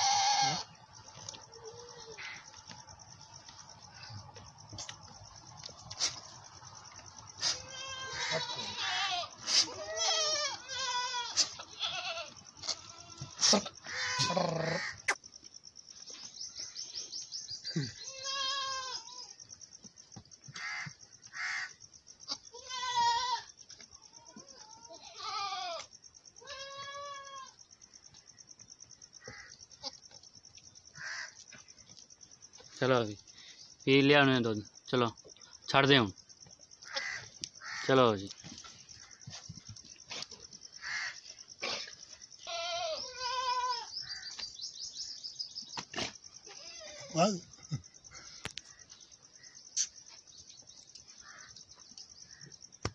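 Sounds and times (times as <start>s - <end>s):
goats bleating: 0.0s - 0.8s, 7.4s - 15.0s, 17.8s - 19.2s, 22.3s - 23.5s, 24.2s - 27.6s, 42.4s - 43.9s.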